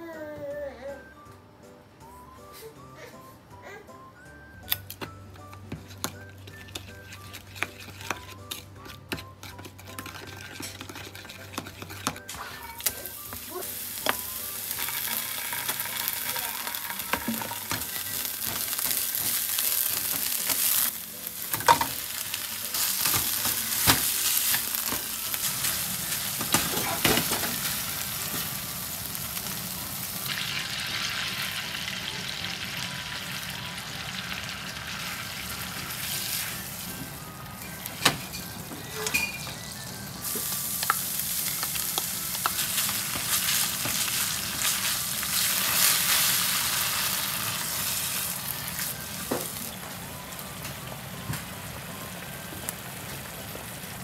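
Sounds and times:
food sizzling in a frying pan: 0:12.3 - 0:54.0.

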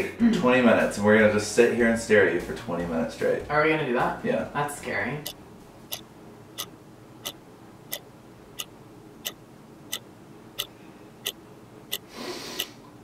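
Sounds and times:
clock ticking: 0:05.2 - 0:06.0, 0:06.6 - 0:08.0, 0:08.6 - 0:10.0, 0:10.6 - 0:12.7.

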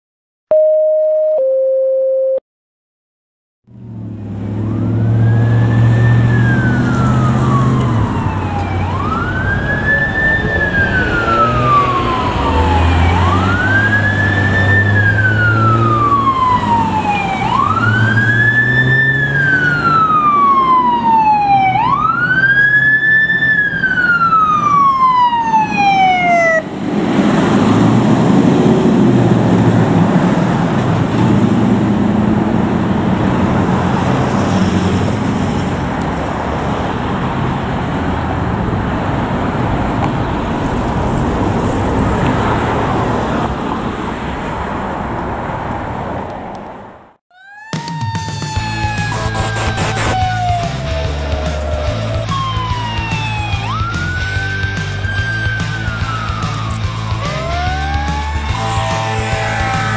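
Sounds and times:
short electronic beeps: 0:00.5 - 0:02.4
diesel engine: 0:03.7 - 0:59.9
road noise: 0:03.7 - 0:59.9
traffic noise: 0:03.7 - 0:59.9
fire engine siren: 0:03.9 - 0:31.1, 0:47.3 - 0:59.9.

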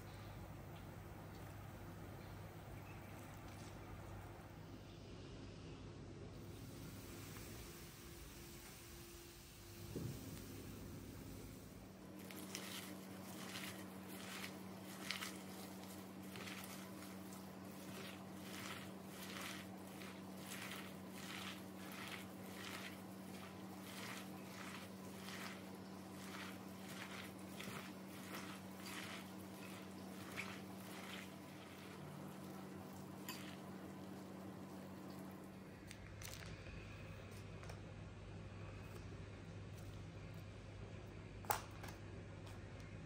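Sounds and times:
onions squelching in bowl: 0:12.0 - 0:36.5.

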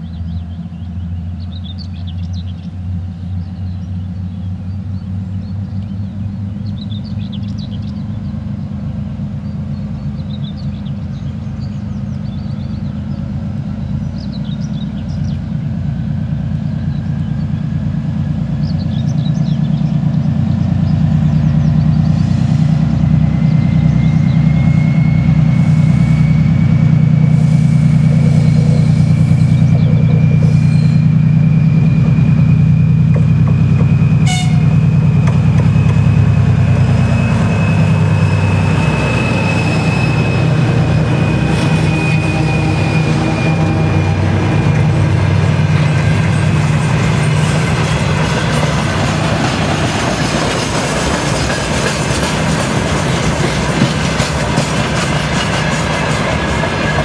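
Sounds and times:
diesel locomotive engine drone: 0:00.0 - 0:57.0
high whine rising in pitch: 0:23.1 - 0:48.6.

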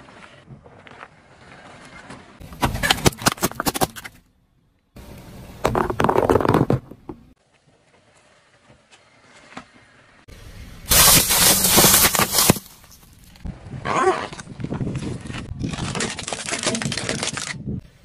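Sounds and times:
tyre crushing objects on asphalt: 0:02.4 - 0:04.2, 0:05.6 - 0:07.4, 0:10.9 - 0:17.5.

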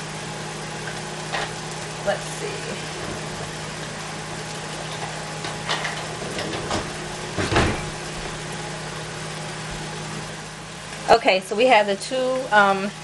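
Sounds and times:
steady low hum: 0:00.0 - 0:13.0
kitchen knocks and clatters: 0:04.9 - 0:08.0.

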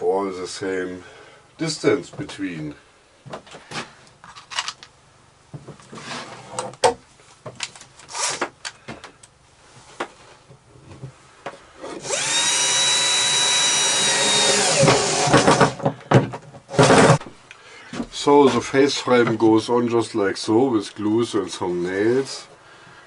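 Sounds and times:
cordless drill running: 0:12.0 - 0:15.8.

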